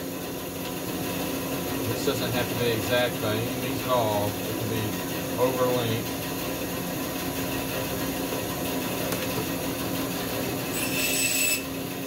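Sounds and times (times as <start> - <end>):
band saw cutting wood: 9.4 - 12.0.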